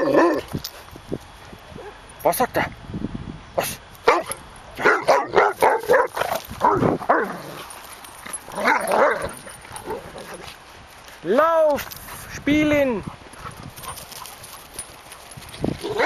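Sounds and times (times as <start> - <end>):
dog barking excitedly: 4.0 - 7.6, 8.5 - 10.1.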